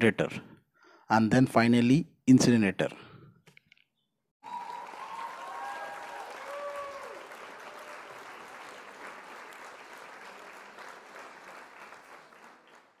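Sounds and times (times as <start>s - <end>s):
cheers: 4.4s - 12.6s
crowd applauding: 4.4s - 13.0s.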